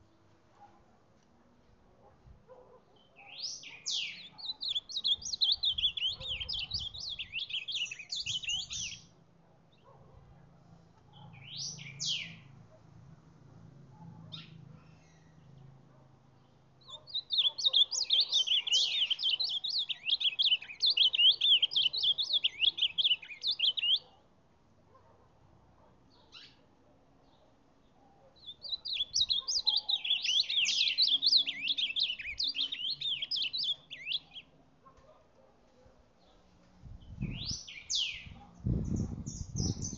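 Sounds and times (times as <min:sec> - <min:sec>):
bird singing warbled phrases: 0:02.9 - 0:10.0, 0:11.2 - 0:12.6, 0:16.4 - 0:24.3, 0:26.1 - 0:34.6, 0:37.0 - 0:39.9.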